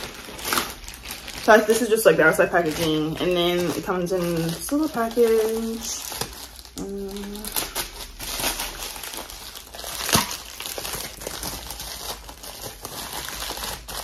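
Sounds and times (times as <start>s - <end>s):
plastic mailer crinkling: 0.0s - 14.0s.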